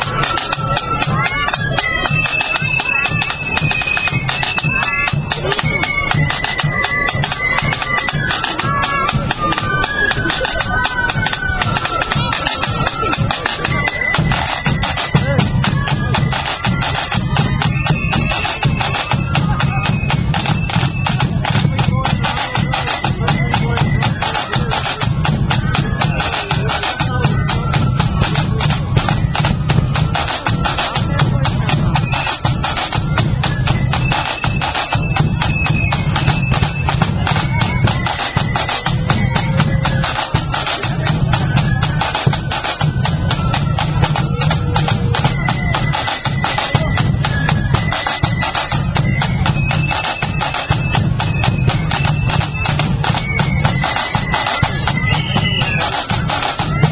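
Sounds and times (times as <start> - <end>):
bass drum beat: 0.0 - 34.0
flutes playing melody: 0.0 - 56.9
side drum strokes: 0.0 - 56.9.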